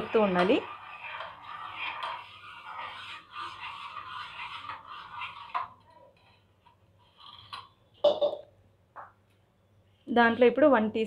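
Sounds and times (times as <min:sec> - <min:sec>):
ladle stirring in metal pan: 0:00.0 - 0:07.8.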